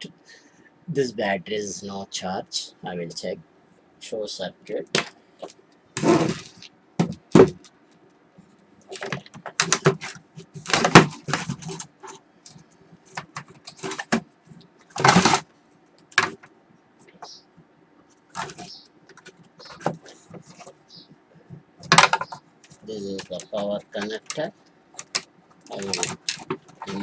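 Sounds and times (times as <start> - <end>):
plastic casing clunks and clicks: 21.8 - 22.4.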